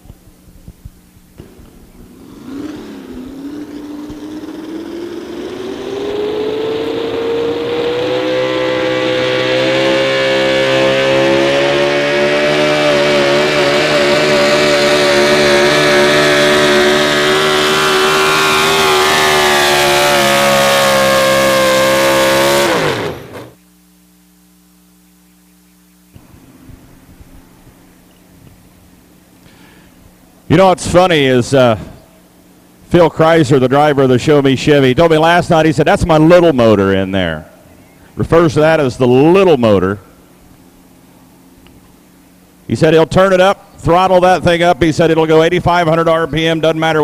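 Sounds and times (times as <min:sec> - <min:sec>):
truck engine revving: 0:01.4 - 0:23.6.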